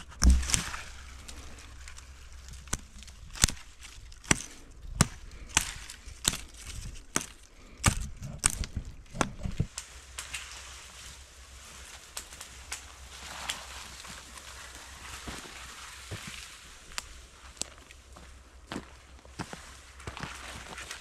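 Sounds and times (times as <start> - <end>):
hatchet chopping branches: 0.0 - 10.5.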